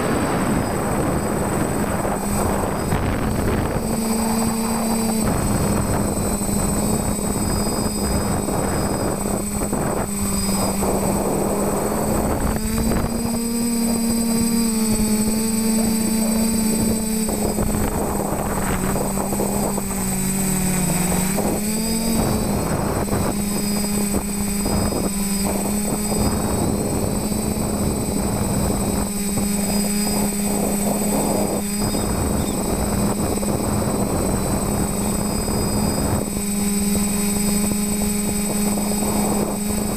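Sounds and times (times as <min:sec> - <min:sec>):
drone propellers buzzing: 0:00.0 - 0:39.9.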